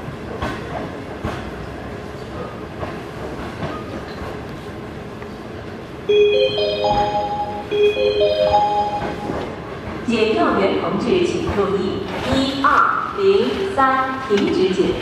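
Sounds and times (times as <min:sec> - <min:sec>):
train coach rumbling: 0:00.0 - 0:15.0
public-address chime: 0:06.1 - 0:09.5.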